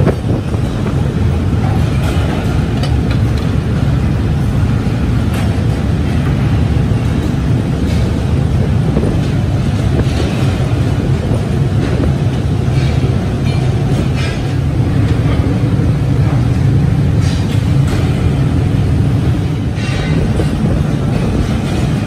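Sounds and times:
machinery rumbling: 0:00.0 - 0:22.0
metallic clanks of steel bars: 0:19.4 - 0:22.0.

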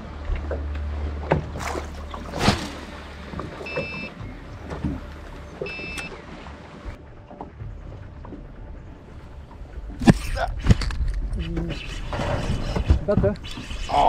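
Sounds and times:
knocks and clicks in boat: 0:00.0 - 0:14.0
low hum: 0:00.0 - 0:14.0
short electronic beeps: 0:03.6 - 0:04.2, 0:05.6 - 0:06.2.

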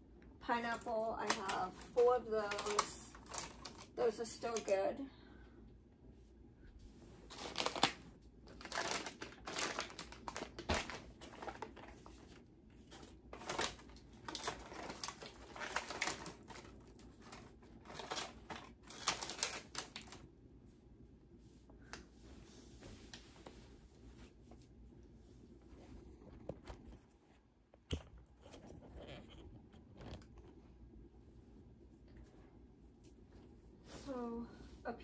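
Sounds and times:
plastic snack packets crinkling: 0:00.6 - 0:04.8, 0:07.3 - 0:20.3.

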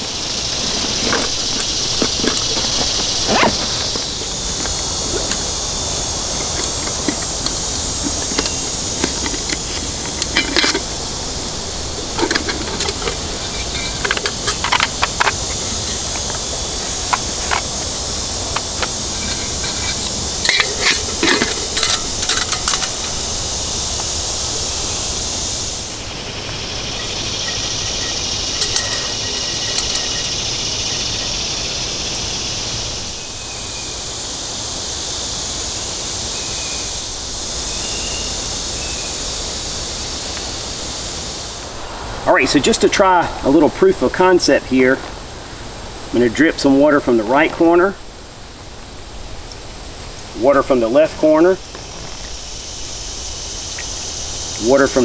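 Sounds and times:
steady high hiss: 0:00.0 - 0:55.0
metal pot and lid clinking: 0:06.4 - 0:10.9, 0:18.6 - 0:23.2, 0:26.9 - 0:31.3.

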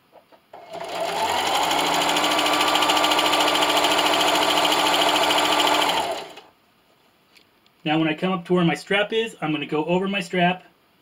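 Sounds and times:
sewing machine stitching: 0:00.5 - 0:06.5.

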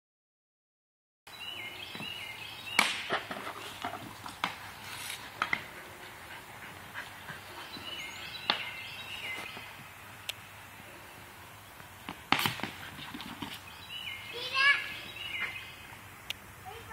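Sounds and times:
hockey stick shot crack: 0:12.2 - 0:12.8.

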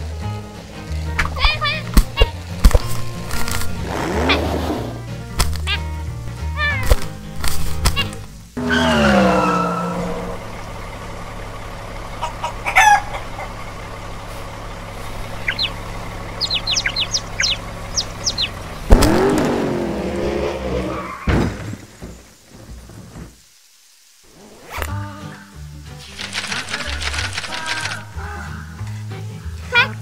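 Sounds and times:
car engine idling hum: 0:00.0 - 0:24.4
rooster call: 0:08.6 - 0:10.5, 0:12.1 - 0:13.8.

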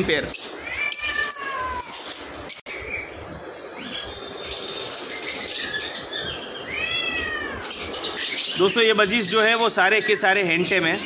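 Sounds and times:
steady background noise: 0:00.0 - 0:11.0
cat meowing: 0:00.6 - 0:02.1, 0:06.6 - 0:07.8.

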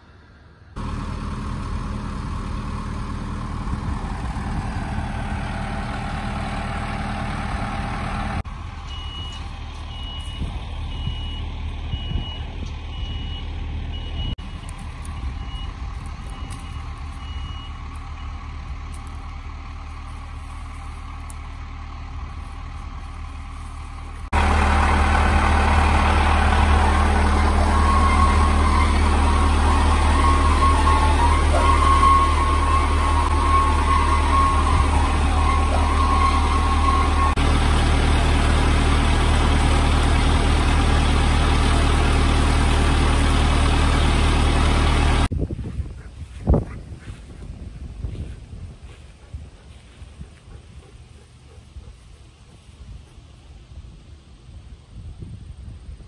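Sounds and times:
engine rumble: 0:00.0 - 0:56.0
back-up alarm beeping: 0:08.8 - 0:14.5, 0:15.1 - 0:18.4, 0:26.8 - 0:37.4.

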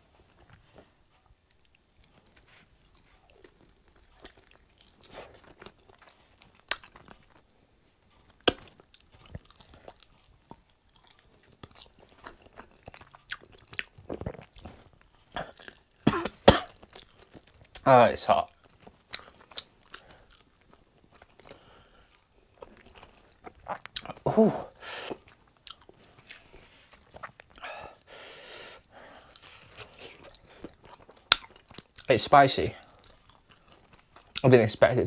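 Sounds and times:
chewing chicken wing: 0:00.4 - 0:07.5, 0:08.1 - 0:16.0, 0:16.7 - 0:24.2, 0:29.3 - 0:34.5.

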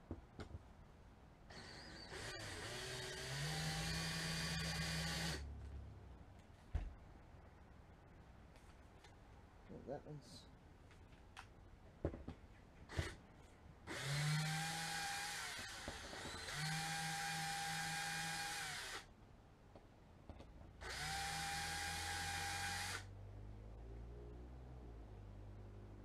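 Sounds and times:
cordless drill driving screw: 0:01.5 - 0:05.4, 0:13.9 - 0:19.1, 0:20.8 - 0:23.1.

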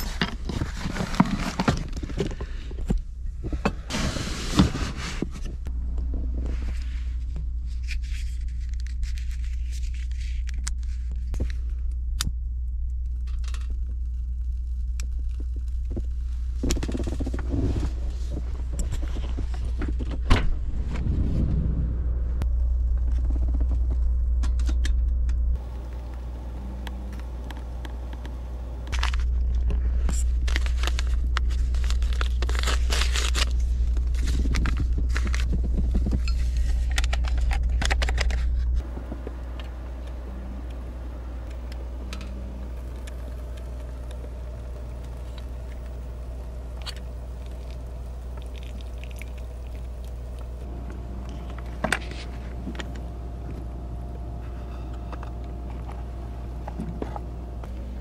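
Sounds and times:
steady low hum: 0:00.0 - 0:58.0
paper packet rustling: 0:28.9 - 0:38.6.

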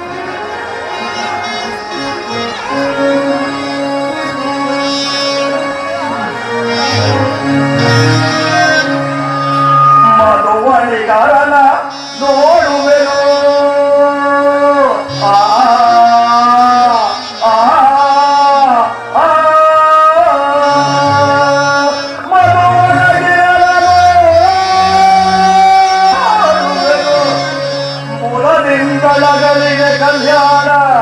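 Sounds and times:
instrumental accompaniment: 0:00.0 - 0:31.0
person singing long held notes: 0:11.7 - 0:31.0.

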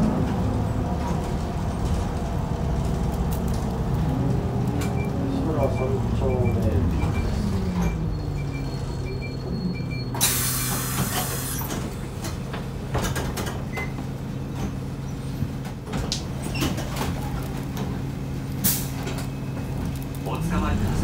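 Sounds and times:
bus diesel engine idling: 0:00.0 - 0:21.0
compressed air hiss: 0:10.2 - 0:11.6.

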